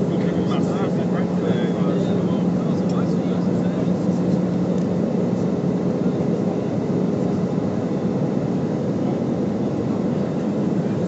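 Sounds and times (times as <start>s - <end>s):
jet engines and airflow rush: 0.0s - 11.0s.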